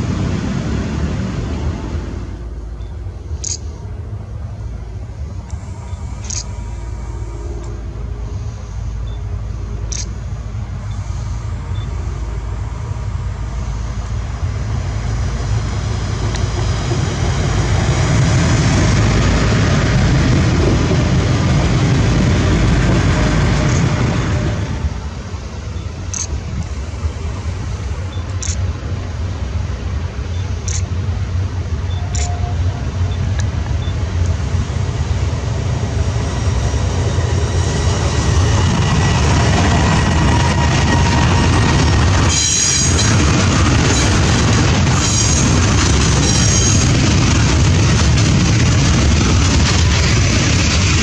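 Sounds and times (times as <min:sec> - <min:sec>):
train rumbling by: 0:00.0 - 0:51.0
freight train clicks: 0:16.1 - 0:24.2, 0:25.8 - 0:26.7, 0:28.1 - 0:28.8, 0:30.4 - 0:31.1, 0:31.9 - 0:32.5, 0:33.1 - 0:34.5, 0:37.6 - 0:51.0.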